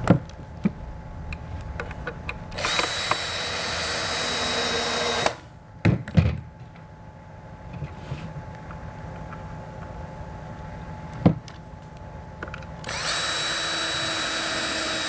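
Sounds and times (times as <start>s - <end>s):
power drill driving screw into wood: 2.6s - 5.4s, 12.9s - 15.0s.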